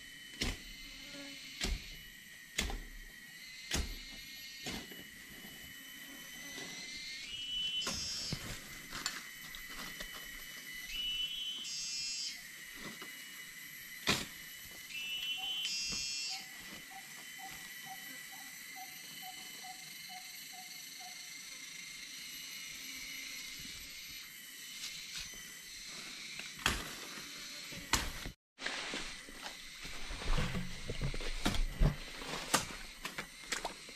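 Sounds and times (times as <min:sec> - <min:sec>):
high-pitched insect drone: 0:00.0 - 0:28.4, 0:29.0 - 0:33.9.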